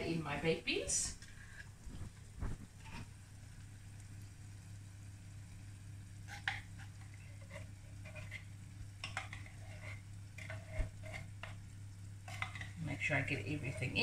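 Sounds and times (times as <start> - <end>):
beans sliding into saucepan: 6.3 - 11.6
light metal clicks and scrapes: 6.3 - 11.6.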